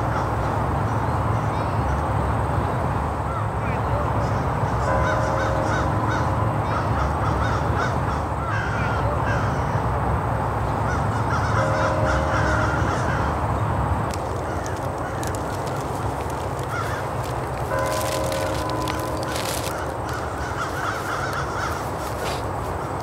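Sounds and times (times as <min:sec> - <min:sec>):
birds cawing: 0:04.3 - 0:09.9, 0:10.8 - 0:23.0
steady low rumble: 0:09.3 - 0:23.0.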